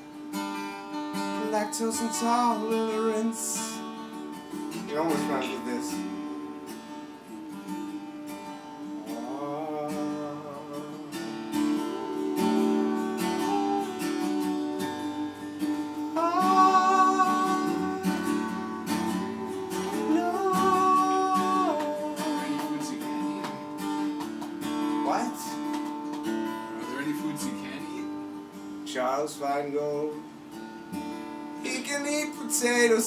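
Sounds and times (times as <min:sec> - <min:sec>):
acoustic guitar strumming: 0:00.0 - 0:33.0
person singing wordless notes: 0:01.4 - 0:03.9, 0:04.8 - 0:23.9.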